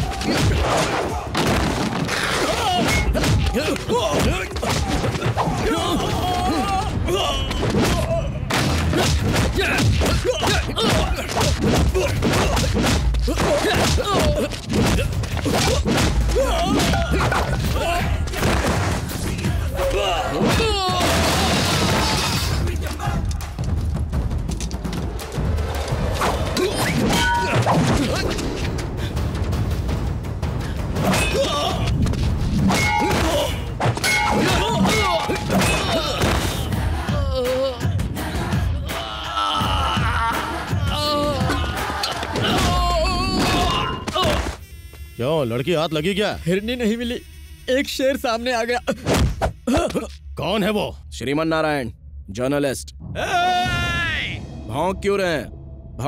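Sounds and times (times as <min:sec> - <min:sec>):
punch and kick impacts: 0:00.0 - 0:02.2, 0:07.6 - 0:17.6, 0:31.0 - 0:36.7, 0:49.0 - 0:49.6
men shouting and grunting: 0:00.0 - 0:23.6, 0:26.2 - 0:29.2, 0:30.8 - 0:32.2, 0:32.8 - 0:44.6, 0:53.1 - 0:54.5
action film background music: 0:00.0 - 0:44.4, 0:47.9 - 0:56.0.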